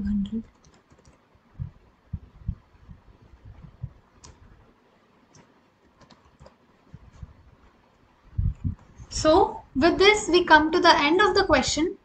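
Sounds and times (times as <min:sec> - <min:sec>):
computer keyboard typing: 0:00.2 - 0:01.3, 0:05.3 - 0:06.6.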